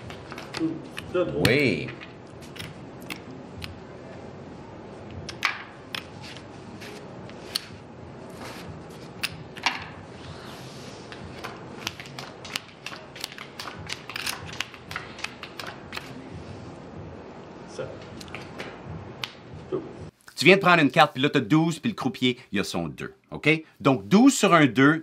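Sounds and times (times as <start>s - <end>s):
cards sliding on felt: 6.2s - 7.7s
casino chips clicking: 11.9s - 16.1s.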